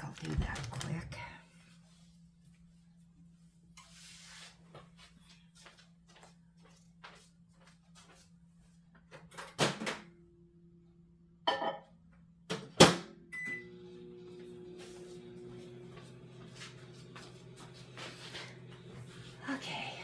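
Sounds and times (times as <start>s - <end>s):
microwave oven humming: 9.3s - 20.0s.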